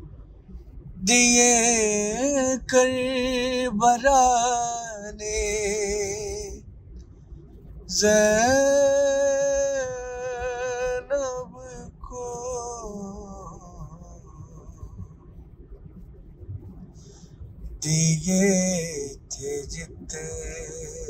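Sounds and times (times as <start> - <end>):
solo voice chanting a lament: 1.0 - 6.6, 7.9 - 14.8, 17.8 - 21.0.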